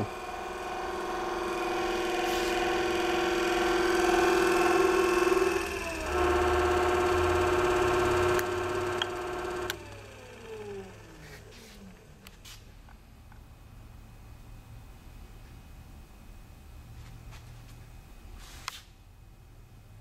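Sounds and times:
belt sander whining: 0:00.0 - 0:12.3
speed control clicks: 0:07.7 - 0:09.9.

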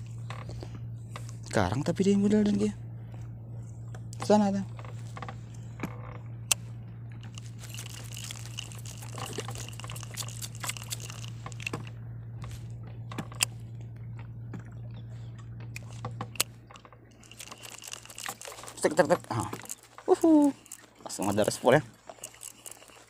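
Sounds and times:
steady low hum: 0:00.0 - 0:23.0
fishing reel clicks and rubbing: 0:07.3 - 0:11.9, 0:17.2 - 0:23.0.

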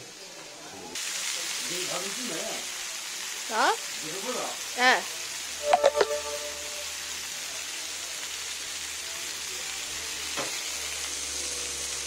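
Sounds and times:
food sizzling on griddle: 0:00.0 - 0:12.0.

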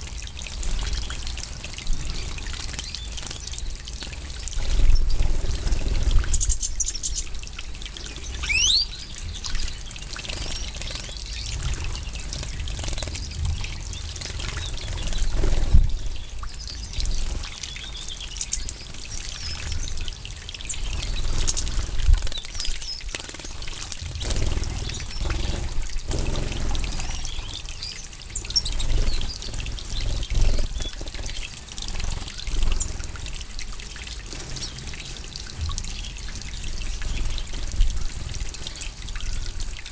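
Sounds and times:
water splashing and trickling: 0:00.0 - 0:39.9.

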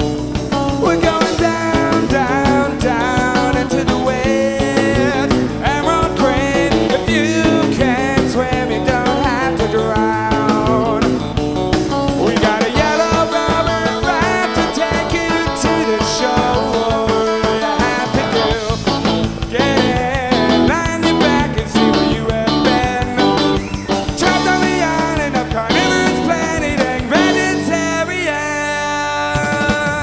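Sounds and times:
indie rock band playing: 0:00.0 - 0:30.0.

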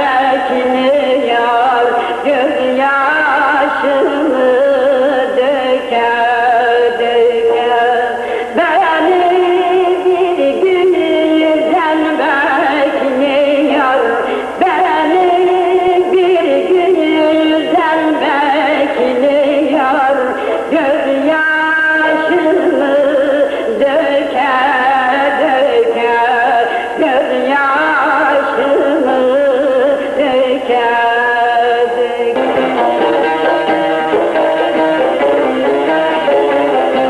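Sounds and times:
instrumental accompaniment: 0:32.3 - 0:37.0.

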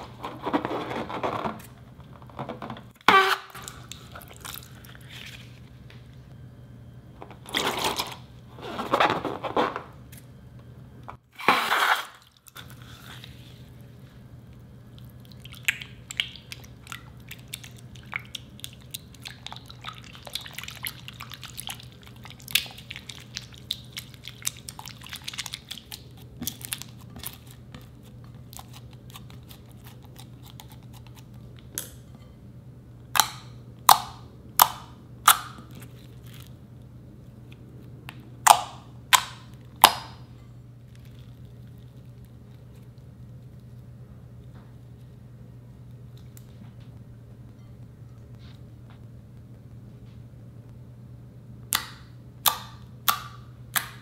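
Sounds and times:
spatula stirring sticky slime: 0:14.9 - 0:31.5
water gushing into bowl: 0:15.2 - 0:25.9.

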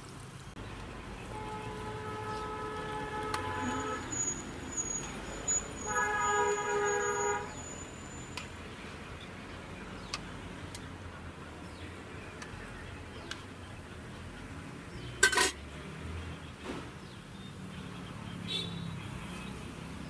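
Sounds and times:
food deep-frying in oil: 0:00.0 - 0:07.0
vehicle horn: 0:01.3 - 0:05.0, 0:05.8 - 0:07.8.

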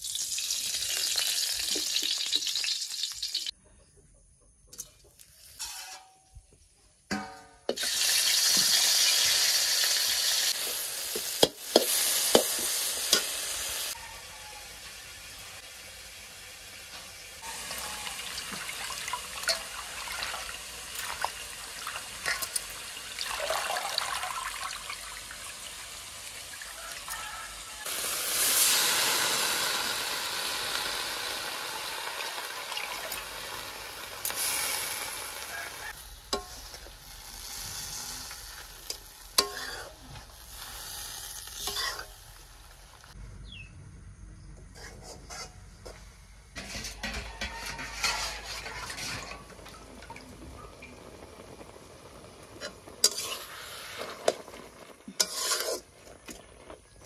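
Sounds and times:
leaves sizzling in hot oil: 0:00.0 - 0:03.5, 0:07.7 - 0:43.2, 0:46.6 - 0:57.0
metal spatula scraping a wok: 0:04.8 - 0:06.5, 0:34.3 - 0:42.5, 0:44.7 - 0:49.6, 0:52.6 - 0:54.4, 0:55.1 - 0:56.3.

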